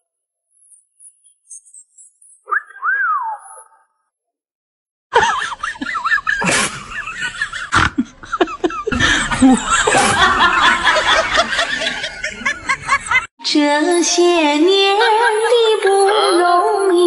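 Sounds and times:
people laughing: 5.1 - 13.3.

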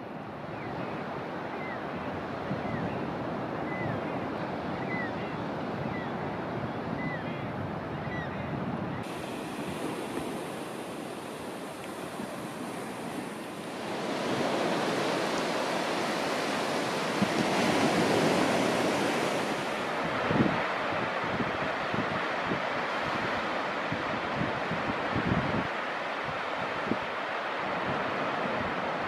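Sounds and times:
wind buffeting microphone: 2.2 - 27.0
surf washing onto sand: 9.0 - 29.0.

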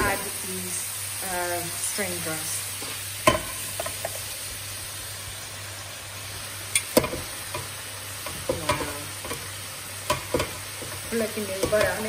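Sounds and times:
vegetables sizzling in a frying pan: 0.0 - 12.0
spatula tapping pan: 3.2 - 4.2, 6.8 - 12.0
pot knocking against pan: 3.3 - 4.2, 10.1 - 11.0.

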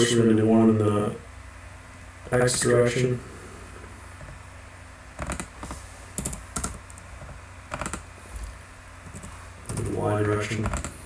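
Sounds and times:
faint low hum: 0.0 - 11.0
keyboard keystrokes: 5.2 - 5.5, 6.2 - 7.0, 7.7 - 8.0, 10.6 - 11.0.

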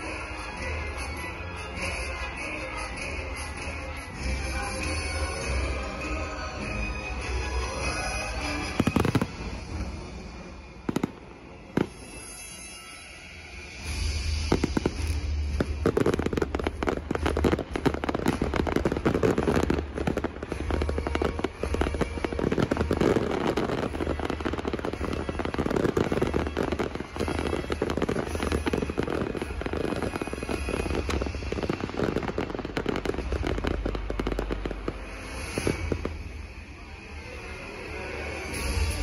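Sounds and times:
fireworks pops and bangs: 8.3 - 10.0, 10.8 - 12.7, 13.8 - 36.6.

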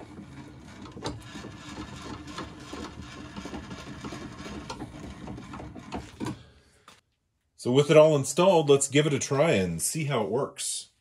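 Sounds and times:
person speaking: 7.6 - 11.0.

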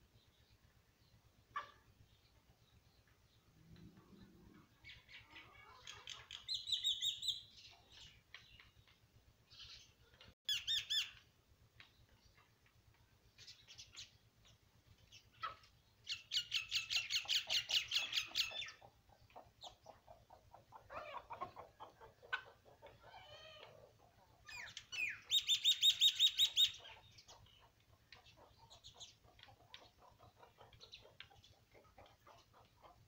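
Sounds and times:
hens calling: 17.1 - 33.0.

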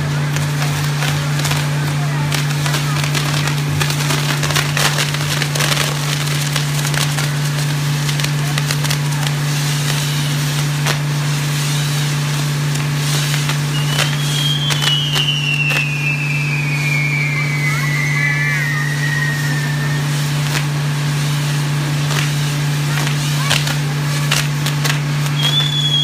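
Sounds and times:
fireworks hissing and crackling: 0.0 - 26.0
fireworks snaps and pops: 0.0 - 26.0
high whistle sliding down: 13.7 - 20.5, 25.4 - 26.0.

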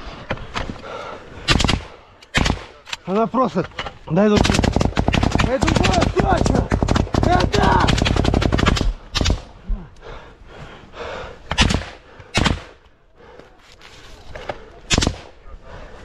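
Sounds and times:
automatic rifle gunfire: 1.5 - 2.8, 4.3 - 9.5.

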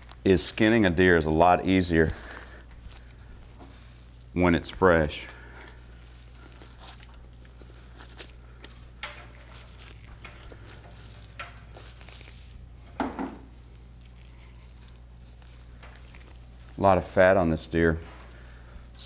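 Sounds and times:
steady low hum: 0.0 - 19.0
hide tearing and rubbing: 5.9 - 12.6.

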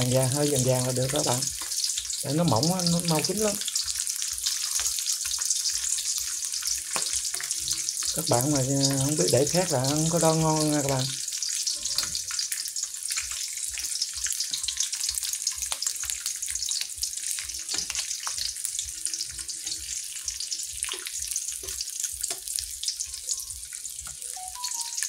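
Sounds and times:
fish frying in oil: 0.0 - 25.0.

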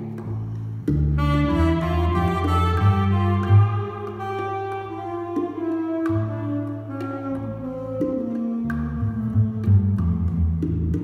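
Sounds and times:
bongo taps: 0.0 - 11.0
plucked double bass: 0.0 - 11.0
tenor saxophone held notes: 1.2 - 9.9.

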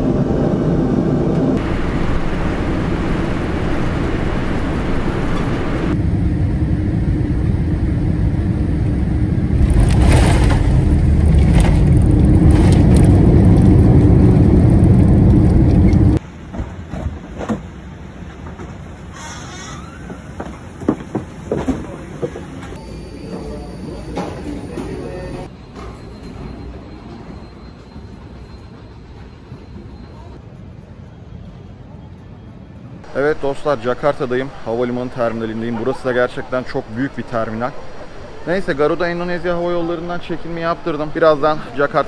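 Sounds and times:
jet engine roar in cabin: 0.0 - 28.9.

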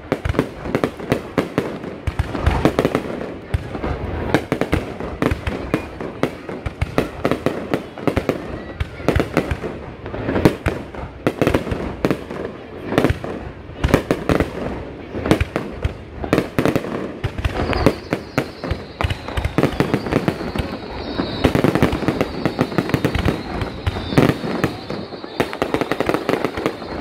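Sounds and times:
fireworks bangs and crackles: 0.0 - 27.0
high thin whistle: 17.5 - 27.0.

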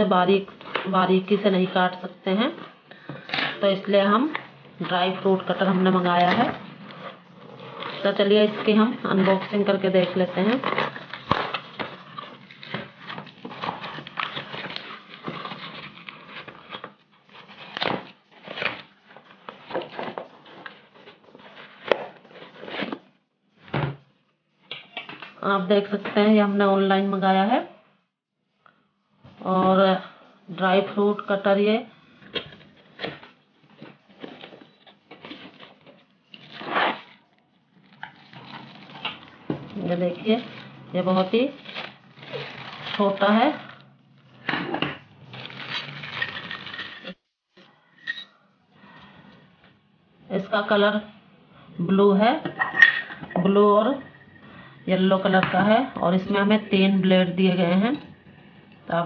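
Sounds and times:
plastic wrapping rustle: 4.4 - 23.0, 32.4 - 43.8, 44.4 - 47.2
cardboard and tape ripping: 10.4 - 18.9, 36.4 - 37.3, 37.9 - 43.7, 45.3 - 47.2.

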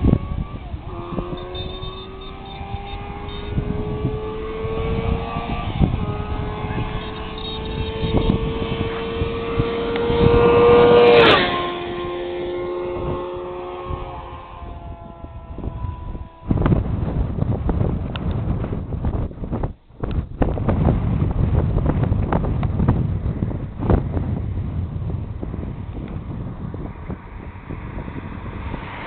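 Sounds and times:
motorcycle engine running hard: 0.0 - 19.7
wind buffeting microphone: 0.0 - 29.0.

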